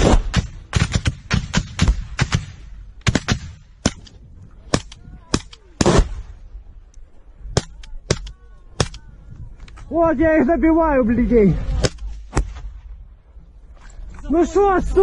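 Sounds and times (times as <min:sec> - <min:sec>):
rifle shots: 0:00.0 - 0:06.4.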